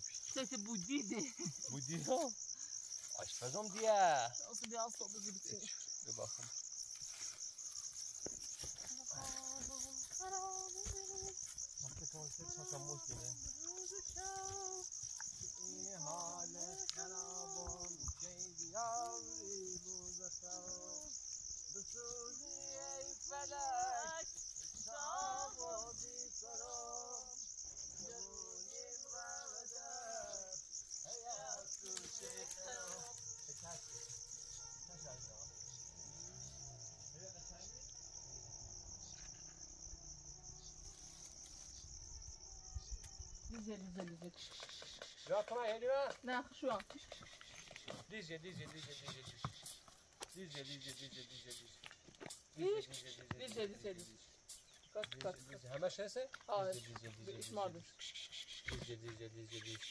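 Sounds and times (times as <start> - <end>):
crickets chirring: 0.0 - 59.9
person talking: 12.0 - 14.5.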